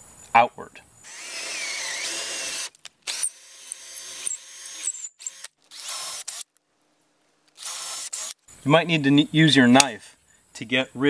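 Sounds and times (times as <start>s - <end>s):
cordless drill boring: 1.1s - 6.5s, 7.6s - 8.4s.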